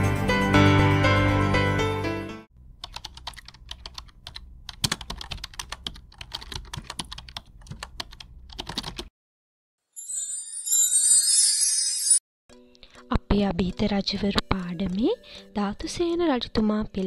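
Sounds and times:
music: 0.0s - 2.5s, 10.0s - 17.0s.

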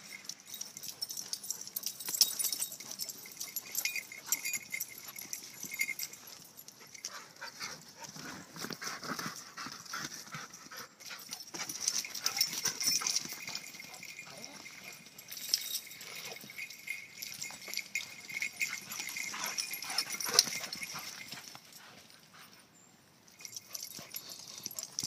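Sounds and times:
dogs playing sounds: 0.0s - 25.0s
dog paws scuffling on dirt: 1.0s - 22.6s.

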